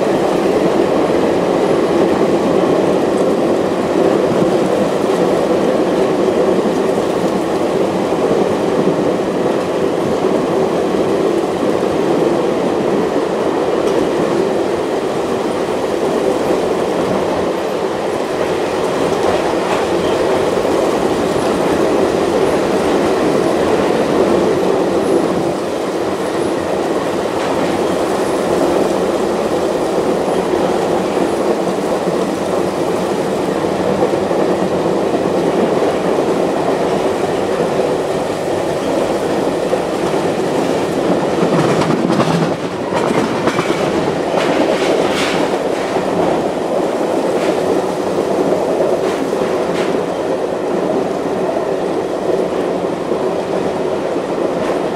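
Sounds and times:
sharp clicks and knocks of train: 0:00.0 - 0:54.9
train wheels rumbling on rails: 0:00.0 - 0:54.9.

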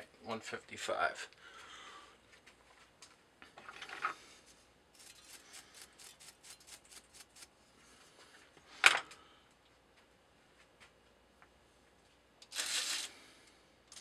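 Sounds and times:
brushing metal chips: 0:05.0 - 0:07.5.

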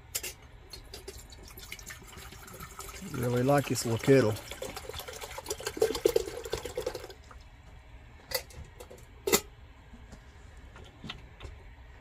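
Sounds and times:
water pouring into metal pot: 0:00.7 - 0:07.3.

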